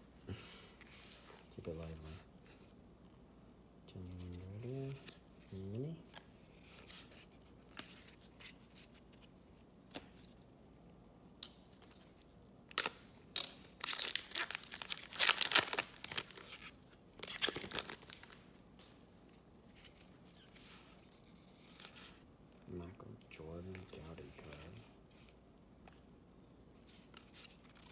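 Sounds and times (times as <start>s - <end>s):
wrapper tearing and crinkling: 12.7s - 18.4s.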